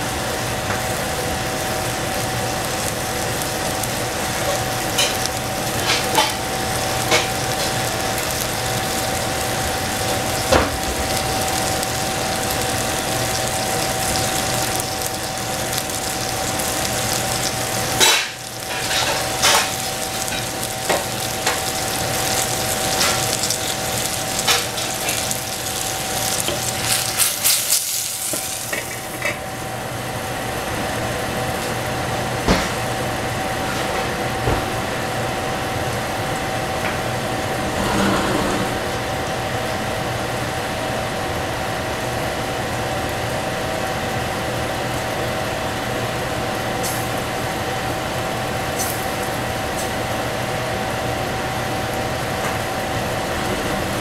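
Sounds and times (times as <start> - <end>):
steady hum: 0.0 - 26.6, 36.1 - 41.0
food frying in a pan: 0.0 - 37.6, 38.9 - 54.0.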